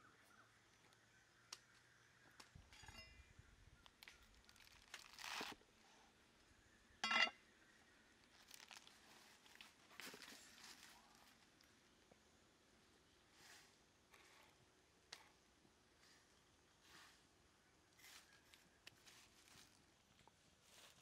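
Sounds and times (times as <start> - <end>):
soft crunching rustles: 3.8 - 5.8, 8.2 - 12.0, 16.0 - 21.0.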